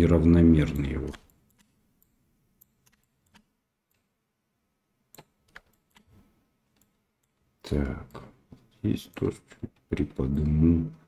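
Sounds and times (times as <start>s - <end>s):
mouse and keyboard clicks: 0.7s - 4.1s, 5.1s - 7.4s.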